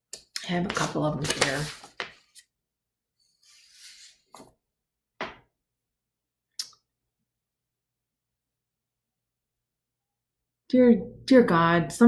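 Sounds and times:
paper rustling: 0.7 - 2.5, 3.4 - 4.5.

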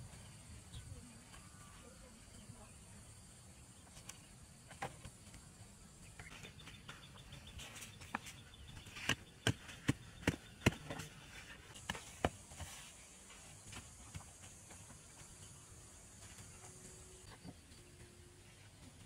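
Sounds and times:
faint insect chirring: 0.2 - 8.8
hand tool knocking soil: 8.1 - 13.0.

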